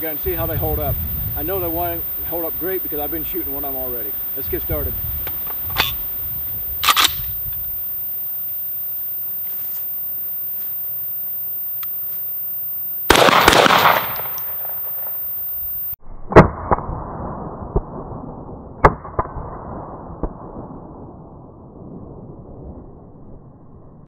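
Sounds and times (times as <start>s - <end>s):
slowed-down deep rumble: 0.0s - 8.0s, 16.0s - 24.0s
low bangs of targets hit: 13.1s - 15.1s
shotgun blasts: 13.1s - 15.2s.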